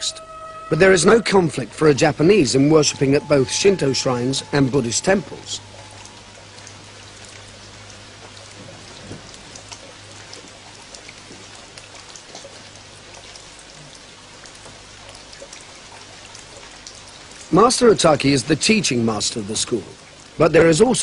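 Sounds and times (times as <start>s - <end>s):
low hum: 0.0s - 11.7s
rain patter: 0.0s - 21.0s.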